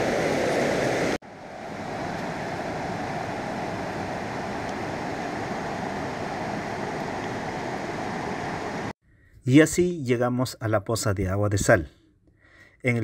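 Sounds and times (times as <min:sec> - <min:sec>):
river water rushing over rocks: 0:00.0 - 0:08.9.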